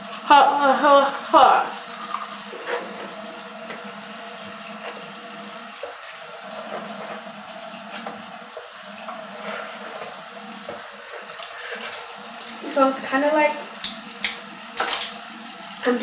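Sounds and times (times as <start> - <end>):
tap running into sink: 5.7 - 12.6, 13.8 - 15.3.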